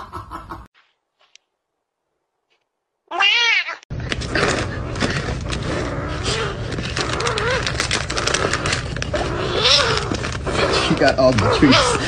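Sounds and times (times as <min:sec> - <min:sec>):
cat meowing: 0:03.1 - 0:03.8
packet rustling and crinkling: 0:04.0 - 0:12.0
kitten growling: 0:04.2 - 0:12.0.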